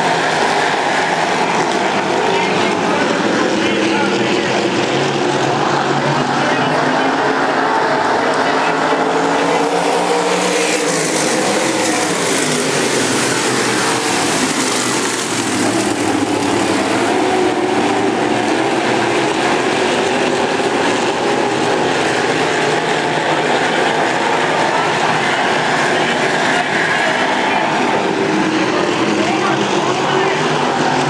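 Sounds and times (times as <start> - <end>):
race car engines droning: 0.0 - 31.0.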